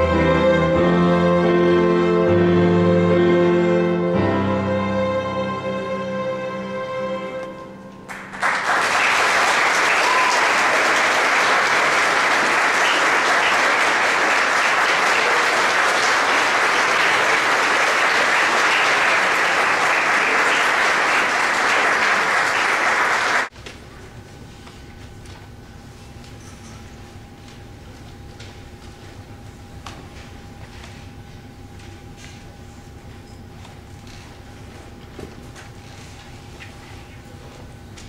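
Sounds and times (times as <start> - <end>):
string orchestra and piano chord: 0.0 - 8.3
audience applauding: 8.1 - 23.5.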